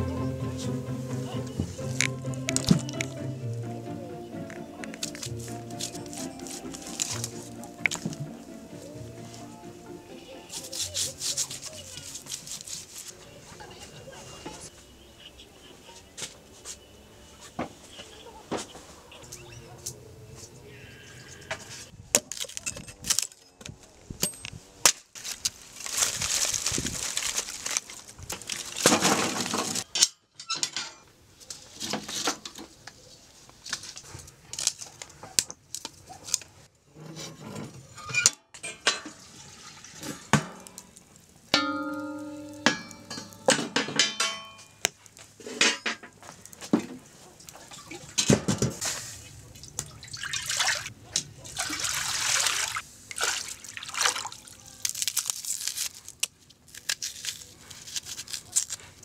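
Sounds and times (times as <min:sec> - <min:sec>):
rustling noise: 0:05.0 - 0:08.4, 0:10.5 - 0:14.7, 0:24.0 - 0:29.9, 0:48.7 - 0:49.4
pots and utensils clinking: 0:37.6 - 0:46.2, 0:46.8 - 0:49.0
ringing clang: 0:41.6 - 0:44.8.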